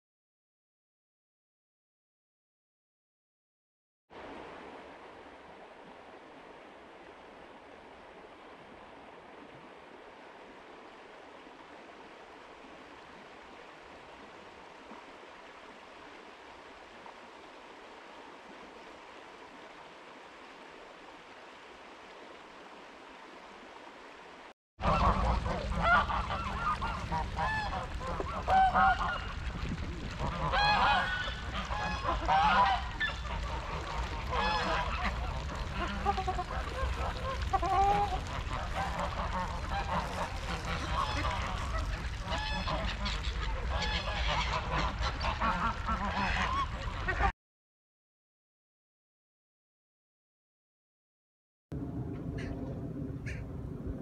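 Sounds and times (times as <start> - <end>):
stream running over stones: 4.1 - 47.3
waterfowl calling: 24.8 - 29.5, 30.2 - 47.3, 52.4 - 52.6, 53.2 - 53.5
steady low rumble: 51.7 - 54.0.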